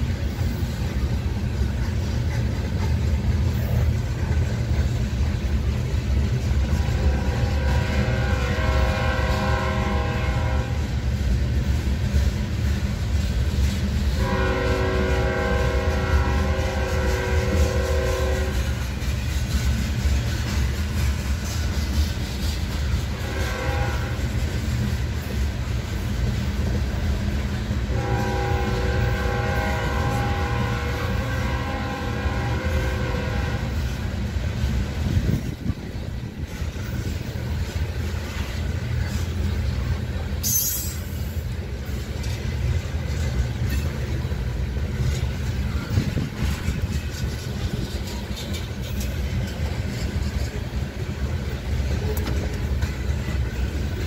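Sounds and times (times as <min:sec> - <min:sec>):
freight train wheels rumbling: 0:00.0 - 0:54.0
locomotive horn: 0:06.2 - 0:11.0, 0:14.1 - 0:19.0, 0:22.8 - 0:24.7, 0:27.8 - 0:35.6.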